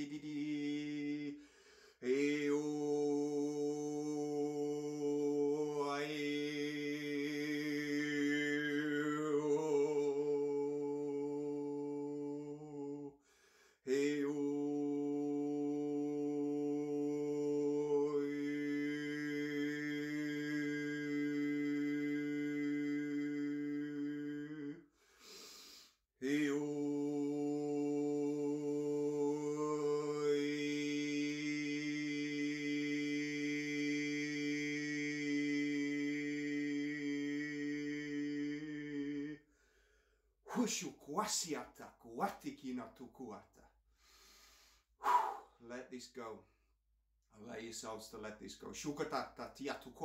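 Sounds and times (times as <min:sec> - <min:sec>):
man breathing: 0:01.3 - 0:02.0, 0:13.2 - 0:13.9, 0:24.9 - 0:26.0, 0:39.4 - 0:40.6, 0:43.9 - 0:45.6
man chanting a held tone: 0:40.5 - 0:43.5.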